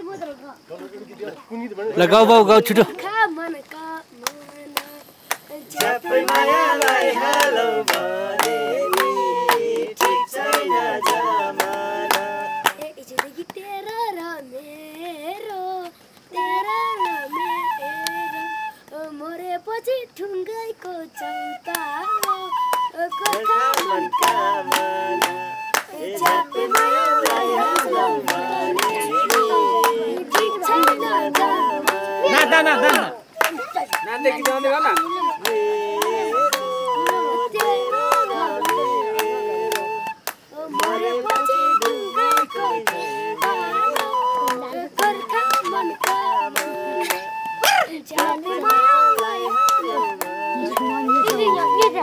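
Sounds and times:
hand clapping: 3.6 - 13.6, 17.0 - 17.2, 21.6 - 52.0
boy and men singing: 4.0 - 19.1, 20.2 - 52.0
bamboo flute: 4.8 - 13.0, 15.6 - 19.5, 20.8 - 52.0.

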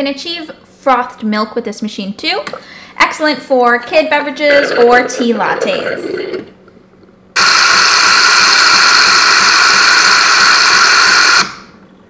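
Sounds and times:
steam hiss frothing milk: 7.4 - 11.7.

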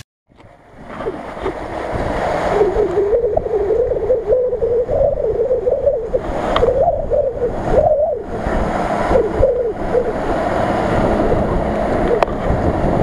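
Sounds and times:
tyres splashing through water: 0.3 - 4.0
car engine running: 0.4 - 13.0.

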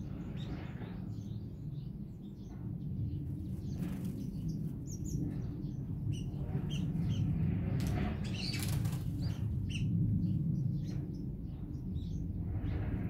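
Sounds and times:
small songbirds chirping: 0.0 - 13.0
steady low rumble: 0.0 - 13.0
bird wingbeats flurry: 3.5 - 4.6, 7.7 - 9.5.

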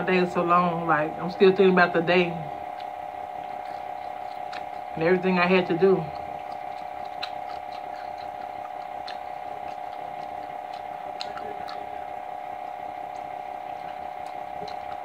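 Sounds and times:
steady background hum: 0.0 - 15.0
chewing mouth sounds: 1.3 - 15.0
fingers tearing crispy chicken: 2.6 - 5.0, 5.6 - 15.0.

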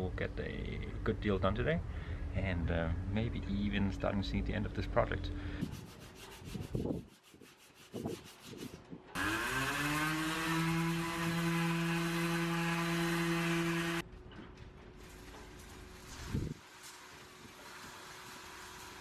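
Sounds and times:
faint hand sanding strokes: 5.5 - 14.0
power sander humming: 9.1 - 14.0.

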